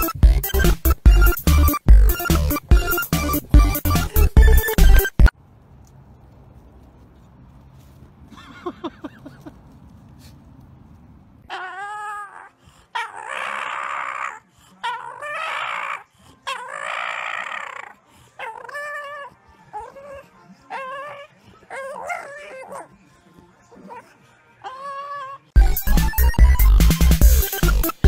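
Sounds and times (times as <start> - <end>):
dog howling and whining: 11.5 - 22.9, 23.7 - 25.5.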